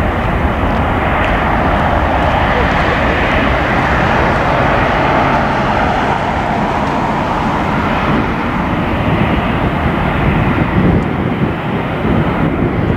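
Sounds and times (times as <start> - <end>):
jet airliner taking off: 0.0 - 12.9.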